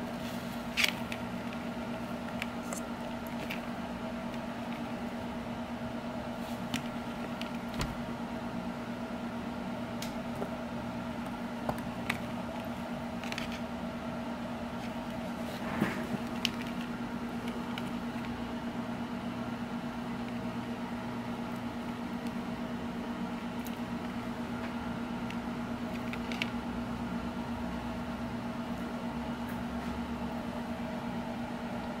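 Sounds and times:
mechanical hum: 0.0 - 32.0.

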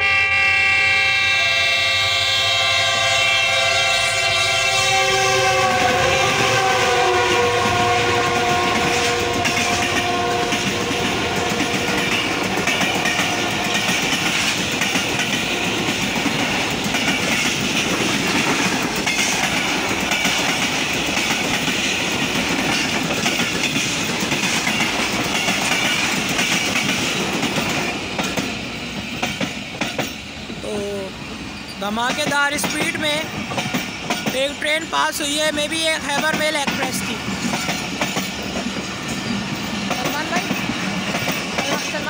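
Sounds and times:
train horn chord: 0.0 - 12.2, 13.0 - 14.0
train wheels clickety-clack: 4.9 - 30.7, 31.8 - 42.0.

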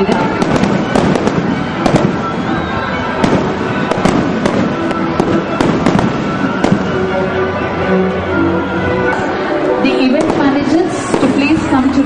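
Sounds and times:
fireworks sharp bangs: 0.0 - 7.2, 10.2 - 12.0
dense background of bursts: 0.0 - 12.0.

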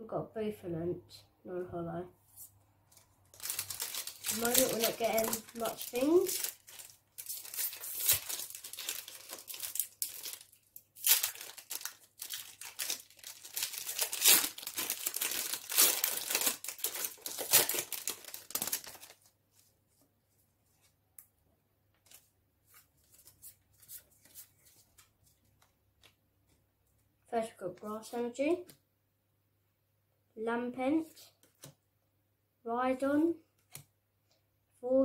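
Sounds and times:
foil wrapper tearing and crinkling: 3.3 - 19.3.

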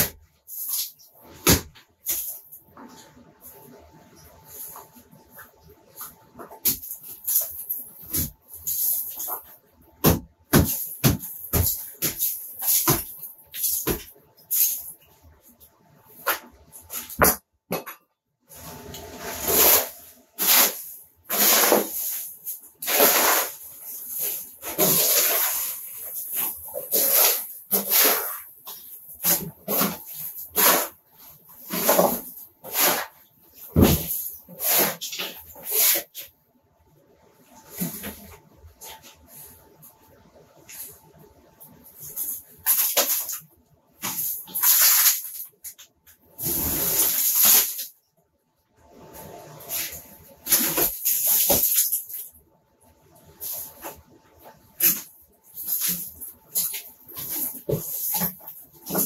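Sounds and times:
shovel scraping rubble: 18.6 - 28.5.

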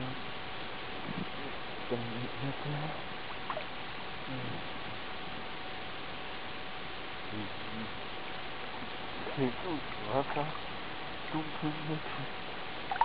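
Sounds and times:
short low vocal sounds: 0.0 - 0.2, 1.1 - 3.0, 4.3 - 4.7, 7.3 - 8.0
faint constant hum: 0.0 - 13.0
steady hiss: 0.0 - 13.0.

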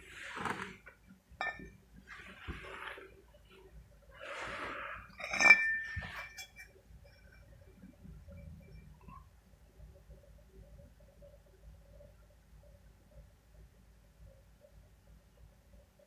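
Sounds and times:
metal scraping on concrete: 1.4 - 3.0, 4.2 - 7.3
ringing metal clank: 5.2 - 7.5.

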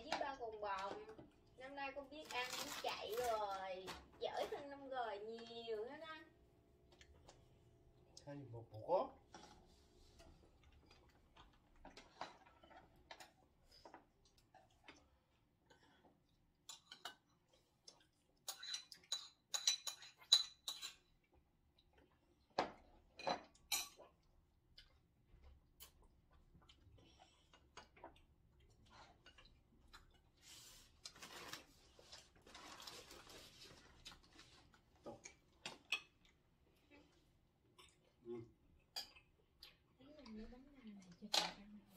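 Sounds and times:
utensils clinking on ceramic bowls: 18.5 - 21.1
soft rustle: 30.4 - 34.8.

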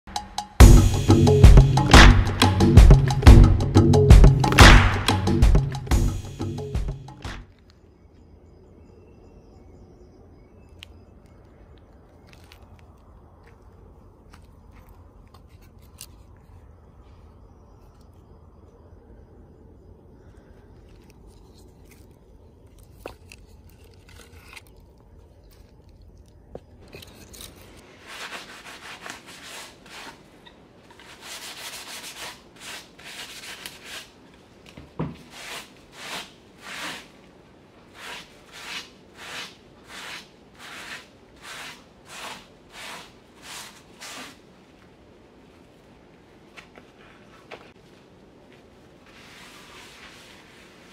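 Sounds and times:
sharp knock: 1.5 - 3.0, 4.4 - 5.6
sponge scrubbing wood: 28.0 - 30.3, 31.0 - 34.2, 35.2 - 37.2, 37.9 - 44.4.

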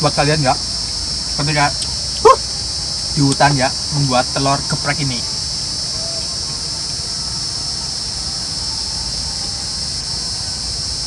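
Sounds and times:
crickets and insects chirping: 0.0 - 11.0.

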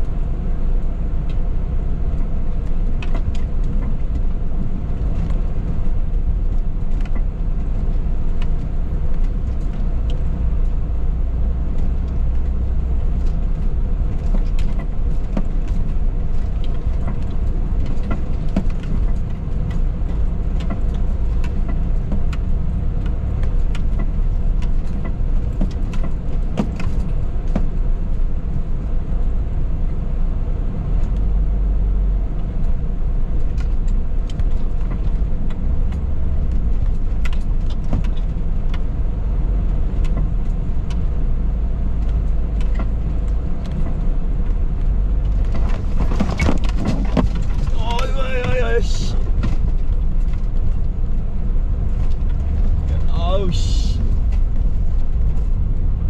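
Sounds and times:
van road rumble: 0.0 - 56.0.

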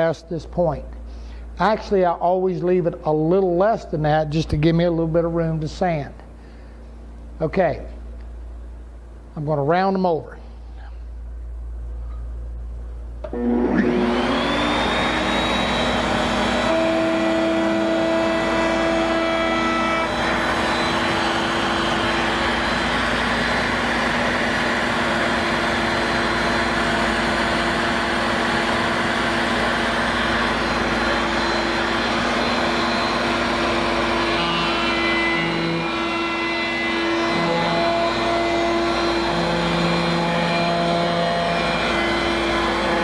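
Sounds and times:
router whining: 13.2 - 43.0.

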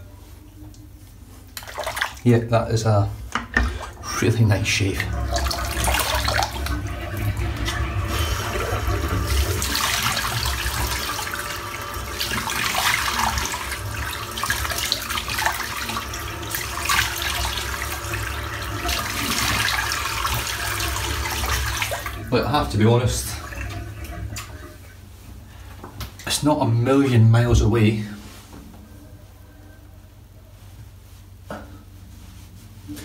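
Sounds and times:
water splashing: 1.5 - 2.4, 3.6 - 24.8.

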